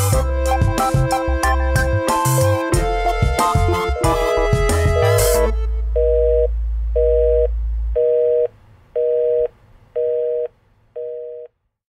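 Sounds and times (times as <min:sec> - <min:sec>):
low held music note: 0:03.8 - 0:08.2
telephone busy tone beeps: 0:06.0 - 0:11.5.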